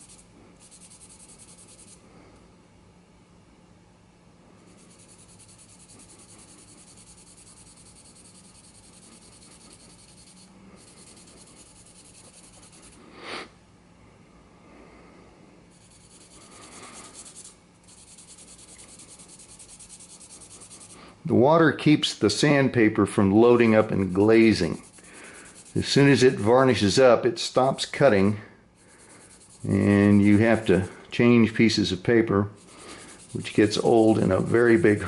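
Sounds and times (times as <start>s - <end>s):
sandpaper rubbing on pipe stem: 0.0s - 2.0s, 4.6s - 13.0s, 15.7s - 21.1s, 23.5s - 27.0s, 28.8s - 31.0s, 32.6s - 35.0s.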